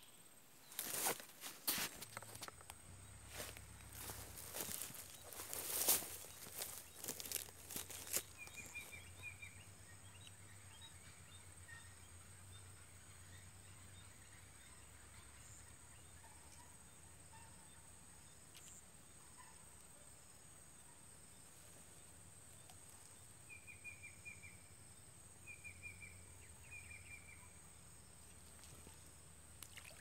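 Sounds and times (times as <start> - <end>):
rustling: 0.7 - 2.7, 3.3 - 8.9
bird chirps: 3.4 - 10.8.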